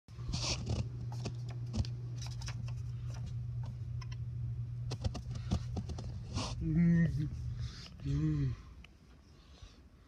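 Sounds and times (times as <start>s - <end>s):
printer humming: 0.1s - 6.7s
paper rustling: 0.2s - 3.4s.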